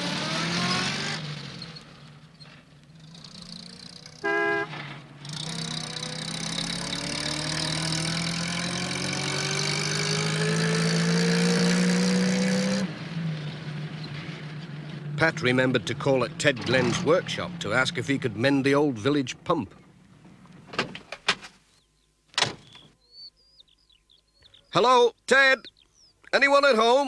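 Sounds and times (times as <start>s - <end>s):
cartoon van engine droning: 0.0s - 20.2s
short horn toot: 4.2s - 4.8s.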